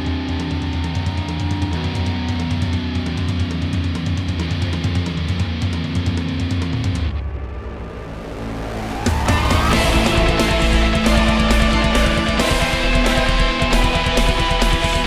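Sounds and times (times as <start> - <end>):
rock music with guitar: 0.0 - 15.0.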